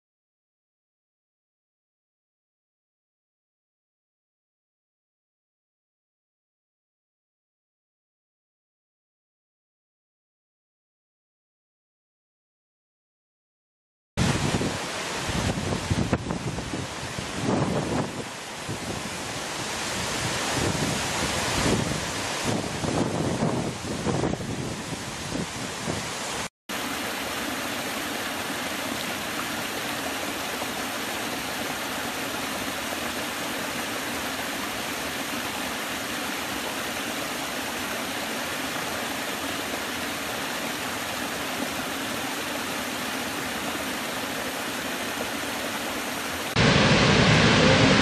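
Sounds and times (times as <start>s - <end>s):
wind buffeting: 14.2s - 26.1s, 46.6s - 48.0s
large waterfall rushing: 14.2s - 48.0s
water cascading over rocks: 14.2s - 48.0s.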